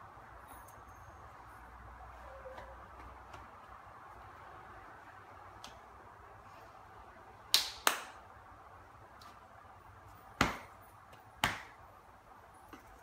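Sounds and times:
low room hiss: 0.0 - 13.0
hands slapping: 5.6 - 5.8, 7.5 - 8.2, 10.4 - 11.8.

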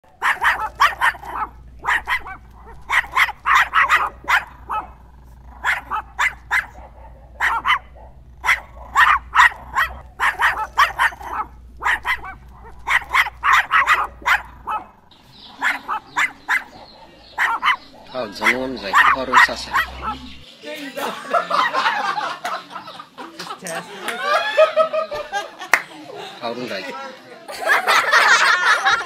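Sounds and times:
small dog yipping and barking: 0.2 - 5.0, 5.6 - 14.9, 15.6 - 16.8, 17.4 - 20.4.

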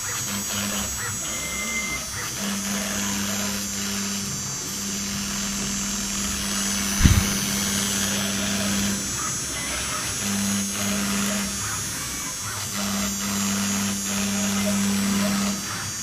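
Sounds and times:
router spindle whining: 0.0 - 16.0
low thump: 7.0 - 7.5.

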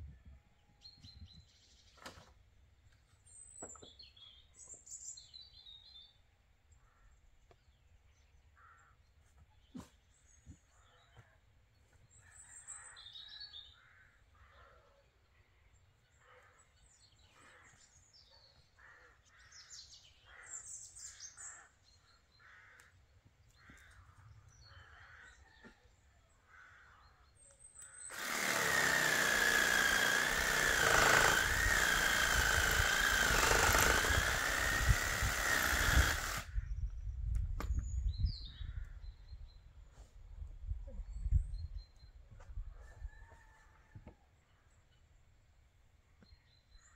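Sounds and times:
power saw cutting wood: 28.1 - 36.5.

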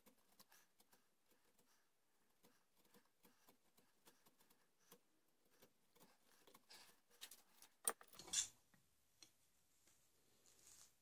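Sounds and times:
carving tool scraping wood: 0.0 - 7.8.

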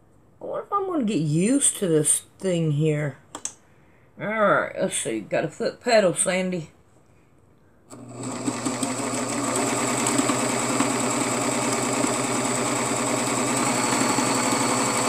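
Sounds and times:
sewing machine rattling: 8.0 - 15.0.

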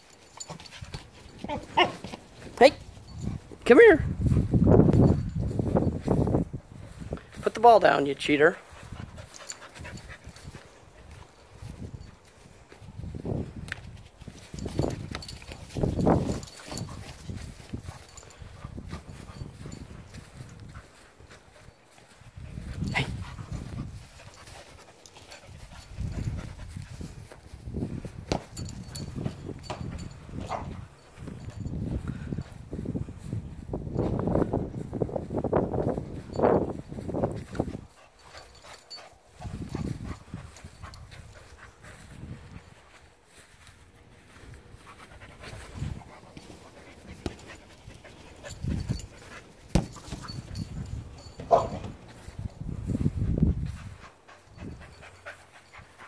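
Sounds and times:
dog panting and snuffling: 0.1 - 3.6, 8.5 - 12.8, 13.9 - 32.6, 37.3 - 43.0, 43.8 - 56.0
ball being kicked thump: 28.2 - 28.6, 49.7 - 50.5.

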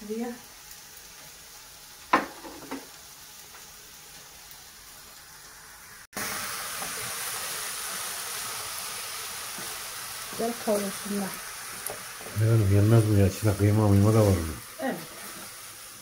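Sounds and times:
onions and meat sizzling in pot: 0.0 - 16.0
crockery knocking on worktop: 2.1 - 2.9.

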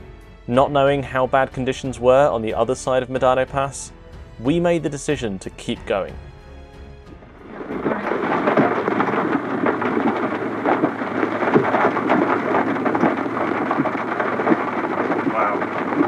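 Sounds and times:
heavy rain pelting: 7.1 - 16.0.

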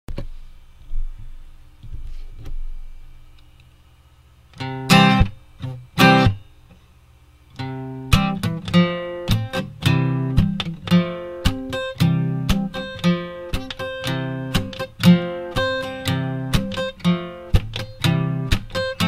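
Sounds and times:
guitar music picked and strummed: 4.6 - 6.6, 7.5 - 19.0.

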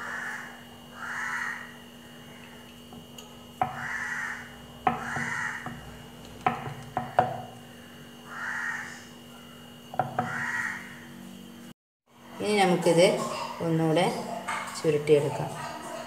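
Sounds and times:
bird calling: 0.0 - 2.6, 3.6 - 11.2
rolling pin knocking on pastry board: 4.8 - 7.5, 10.0 - 10.4.

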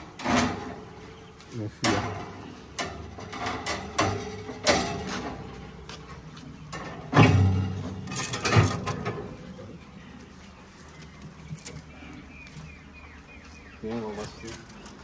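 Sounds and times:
steel cage bars rattling: 0.0 - 10.0.

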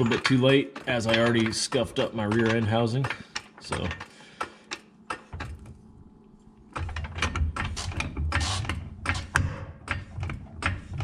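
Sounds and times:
floor jack clicking and clanking: 0.0 - 4.1.

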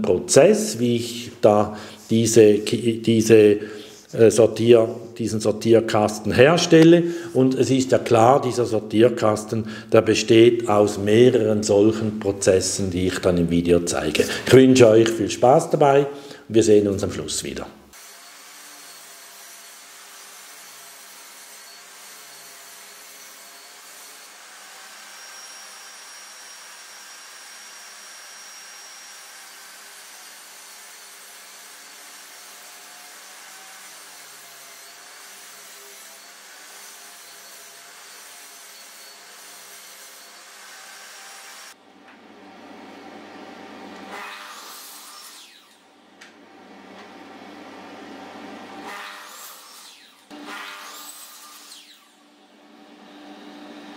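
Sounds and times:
mitre saw cutting: 17.9 - 41.8, 43.9 - 45.9, 48.0 - 53.9
table saw cutting panel: 17.9 - 53.9.

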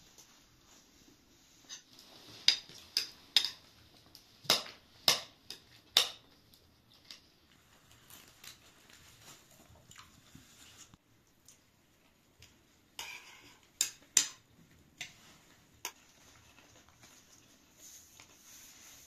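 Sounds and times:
spoons clinking against bowls: 1.7 - 3.7.

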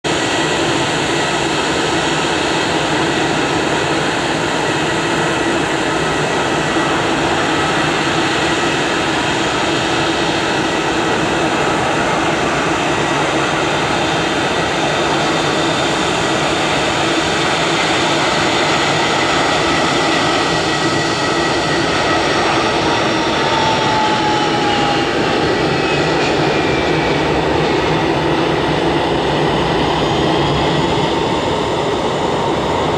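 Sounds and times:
jet engines whining: 0.1 - 32.9.

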